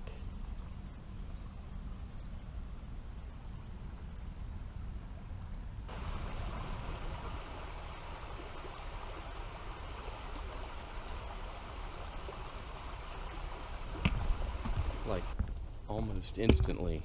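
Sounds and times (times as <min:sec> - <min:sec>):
creek water rushing over rocks: 0:05.9 - 0:15.4.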